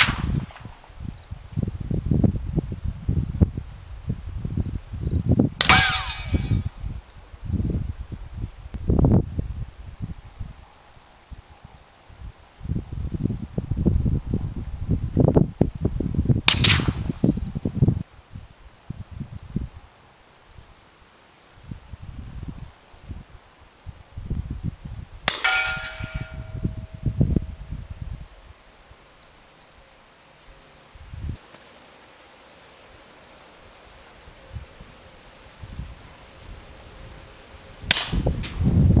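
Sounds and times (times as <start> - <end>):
suppressed gunshot crack: 0.0 - 0.8, 16.5 - 17.1, 25.3 - 26.6, 37.9 - 38.6
wind noise on microphone: 0.0 - 20.8, 21.6 - 28.6, 30.9 - 31.5, 34.2 - 39.0
high insect buzz: 0.0 - 25.4, 26.4 - 39.0
metallic ring of bullet on steel: 5.6 - 6.7, 25.3 - 27.6.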